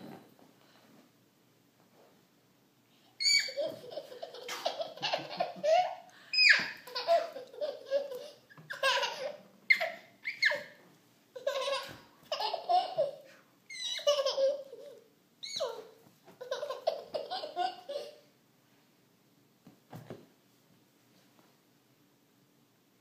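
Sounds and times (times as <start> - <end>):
toddler squealing: 3.2 - 3.8, 6.4 - 6.8, 9.7 - 10.8, 13.7 - 14.2, 15.4 - 15.9
toddler giggling: 3.2 - 10.8, 11.4 - 18.3.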